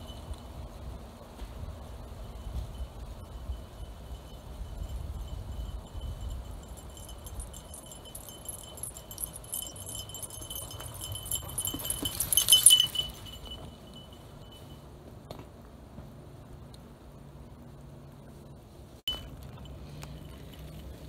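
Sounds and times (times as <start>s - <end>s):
small bell jingling: 2.2s - 14.8s, 19.1s - 21.0s.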